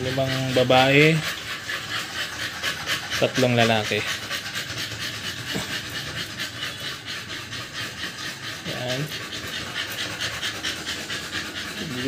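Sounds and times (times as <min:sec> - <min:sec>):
puppies panting: 0:00.0 - 0:12.0.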